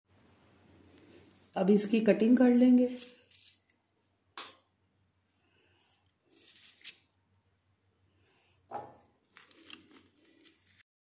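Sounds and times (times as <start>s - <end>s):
soft scrapes hulling strawberries: 5.2s - 8.6s.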